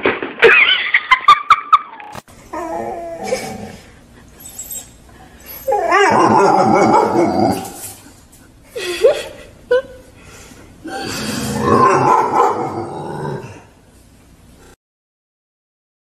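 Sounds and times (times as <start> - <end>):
dog crying: 2.5 - 8.0, 11.6 - 12.7.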